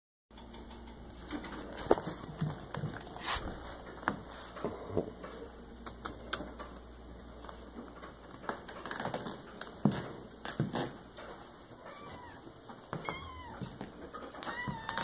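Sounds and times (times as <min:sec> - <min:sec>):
metal bowl and kibble clicking: 0:00.3 - 0:03.2, 0:05.8 - 0:06.8.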